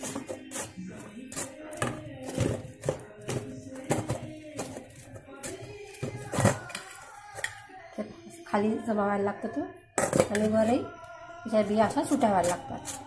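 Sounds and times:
spoon scraping a wire sieve: 0.0 - 7.7, 10.0 - 10.8, 11.7 - 13.0
faint background music: 0.0 - 13.0.

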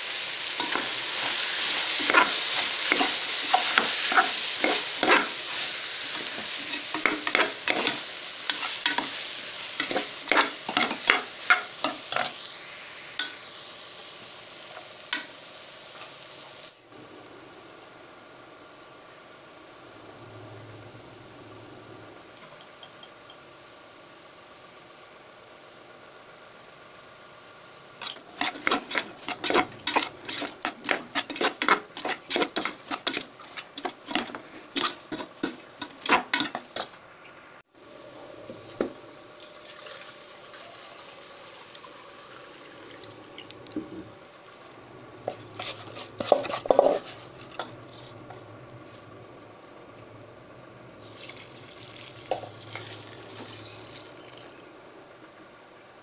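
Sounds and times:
metal spoon stirring in metal pot: 0.6 - 9.2, 9.8 - 12.3, 28.0 - 37.0, 45.2 - 48.4.

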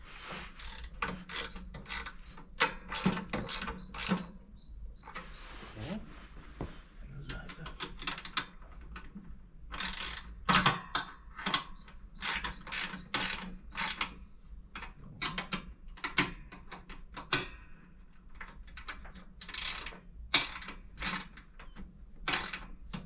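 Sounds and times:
ratchet wrench clicking: 0.6 - 4.3, 9.8 - 10.3, 19.4 - 21.4, 22.3 - 22.7.

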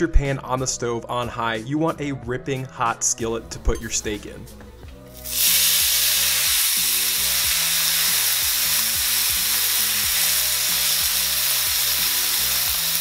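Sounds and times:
steak sizzling in skillet: 5.1 - 13.0.

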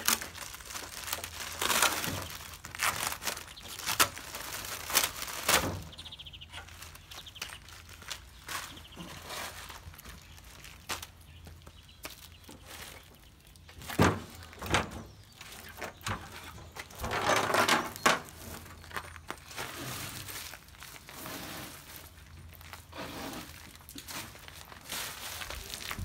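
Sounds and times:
packaging rustling: 0.0 - 6.0, 6.6 - 13.0, 17.7 - 26.0.

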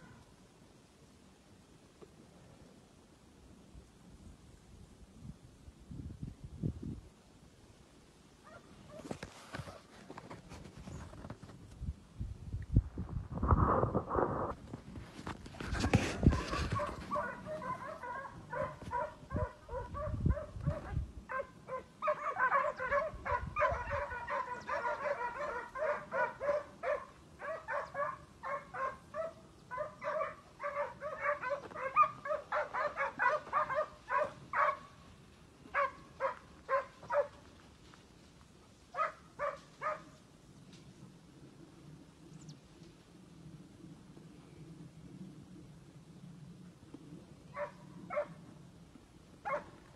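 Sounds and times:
low rumble on microphone: 10.4 - 21.3
hounds baying: 16.2 - 34.9, 35.7 - 37.4, 49.4 - 49.8.

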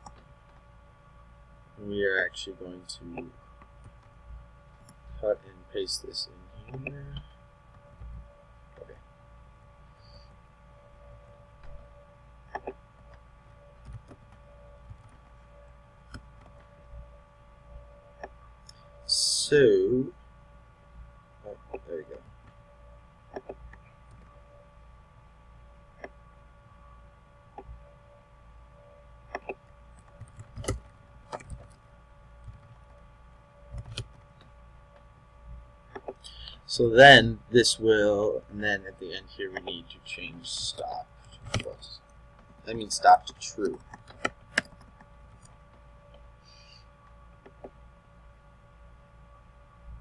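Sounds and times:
faint constant tone: 0.0 - 50.0
low steady hum: 0.0 - 50.0
computer keyboard keystrokes: 29.3 - 31.8, 33.7 - 34.2.

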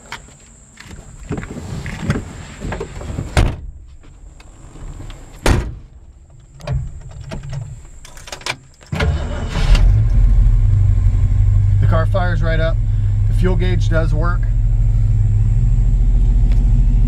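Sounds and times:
car engine starting and rumbling: 0.8 - 17.0
knocks and clunks in car cabin: 0.9 - 8.6
car door shutting: 1.3 - 10.2.

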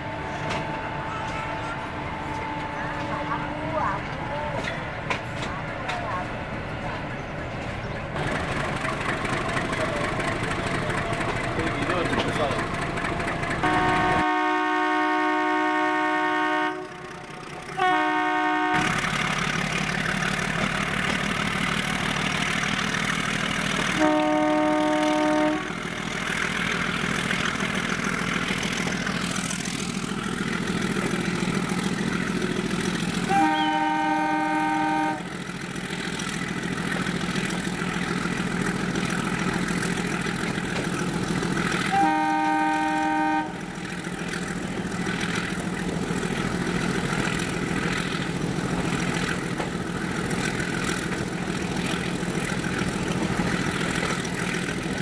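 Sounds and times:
diesel engine drone: 0.0 - 55.0
moving train noise: 0.0 - 55.0
locomotive horn blasts: 13.6 - 17.2, 17.8 - 19.0, 24.0 - 25.8, 33.3 - 35.3, 41.9 - 43.7.

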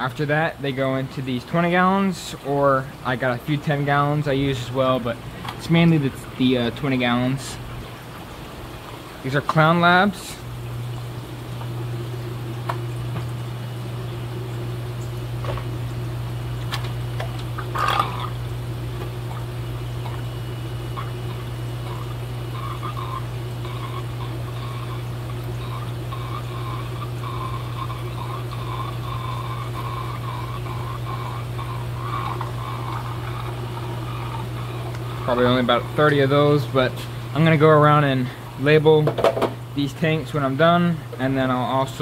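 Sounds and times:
low equipment hum: 0.0 - 42.0
water splashing and trickling: 2.4 - 38.8.

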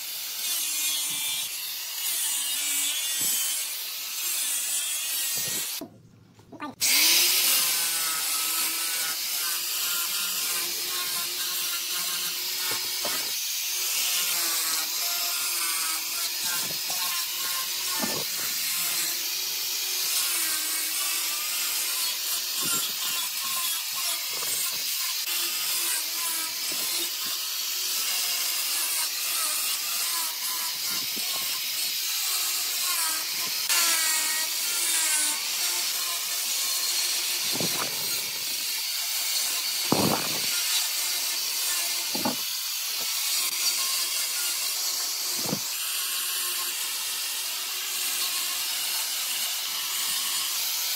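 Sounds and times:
angle grinder sanding wood: 0.0 - 5.9, 6.6 - 50.9.

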